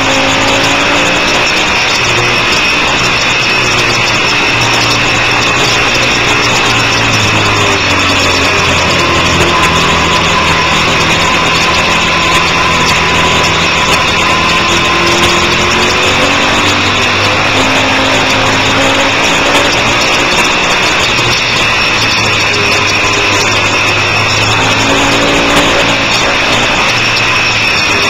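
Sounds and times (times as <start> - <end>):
motorcycle engine running hard: 0.0 - 28.0
wind noise: 0.0 - 28.0.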